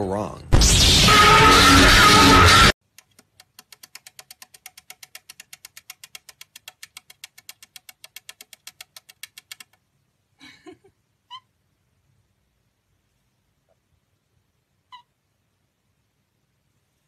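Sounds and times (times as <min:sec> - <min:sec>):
parrot rapid clicking: 0:02.8 - 0:09.9.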